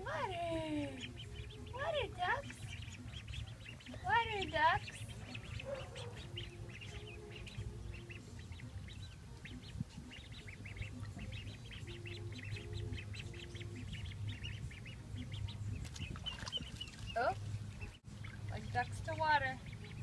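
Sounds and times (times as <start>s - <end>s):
ducklings peeping: 0.0s - 20.0s.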